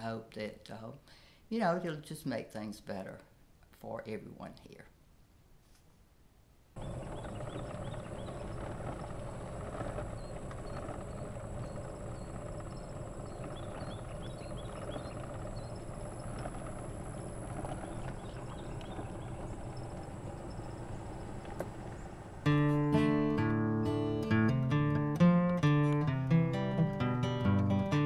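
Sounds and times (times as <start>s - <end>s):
small birds chirping: 6.8s - 23.5s
high-pitched whine: 6.8s - 24.0s
golf cart motor and tyre noise: 6.8s - 25.2s.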